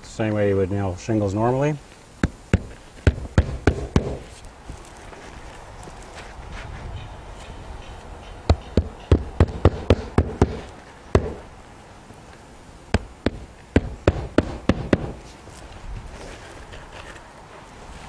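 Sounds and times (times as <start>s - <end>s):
hammering nails into shingle: 2.2s - 4.3s, 8.2s - 11.5s, 12.9s - 15.2s.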